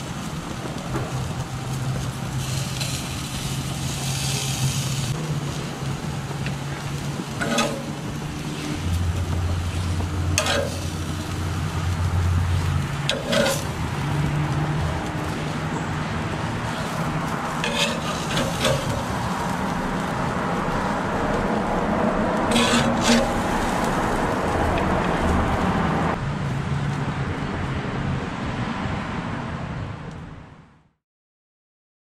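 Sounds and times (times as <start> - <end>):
low rushing noise: 0.0 - 30.0
metal spatula scraping grill grates: 1.9 - 24.3.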